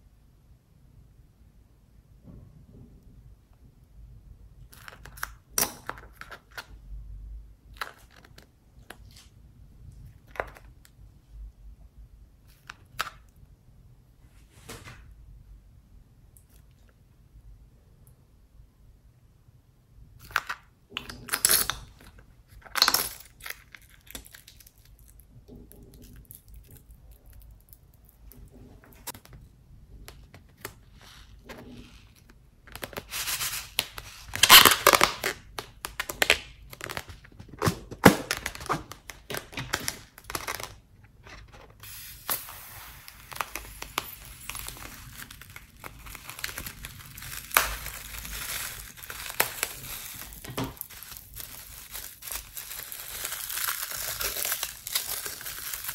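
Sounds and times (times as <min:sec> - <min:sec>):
rubber balloons crinkling and rustling: 0:20.8 - 0:55.9.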